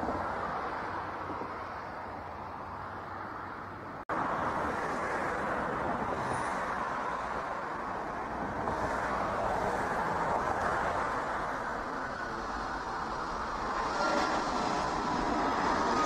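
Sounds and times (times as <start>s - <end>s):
jet engines at take-off thrust: 4.2s - 16.0s.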